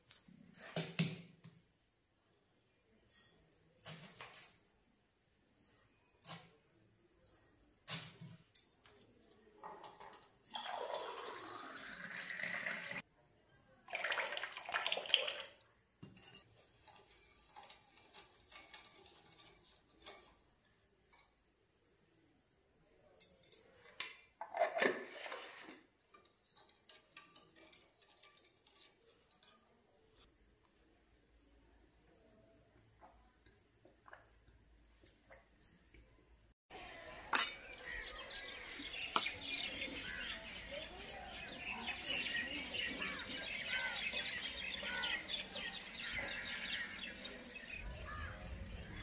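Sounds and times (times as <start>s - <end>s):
water pouring into glass: 10.5s - 13.0s, 13.9s - 15.6s
spoon clinking against glass: 16.0s - 16.6s, 37.3s - 37.8s.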